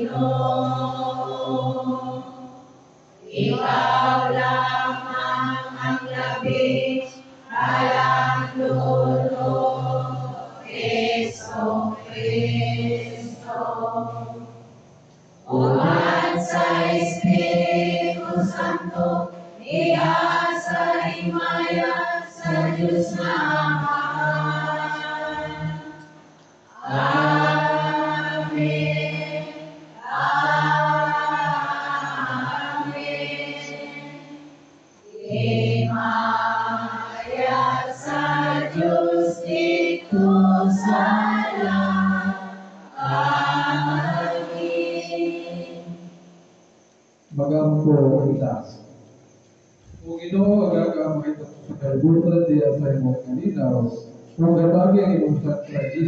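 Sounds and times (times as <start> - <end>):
man singing chant over loudspeakers: 15.5 - 25.8, 26.8 - 29.0, 50.1 - 56.0.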